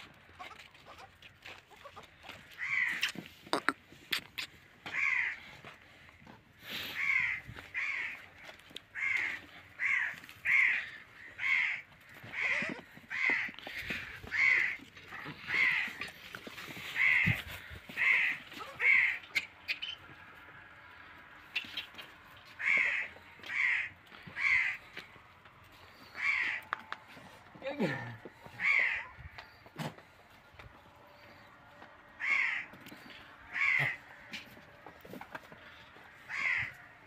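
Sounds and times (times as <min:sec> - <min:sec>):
crow cawing: 0:02.3 - 0:03.1, 0:04.8 - 0:05.6, 0:06.8 - 0:16.2, 0:16.8 - 0:20.2, 0:22.5 - 0:25.1, 0:26.0 - 0:26.9, 0:28.4 - 0:29.6, 0:32.0 - 0:34.5, 0:35.6 - 0:37.0.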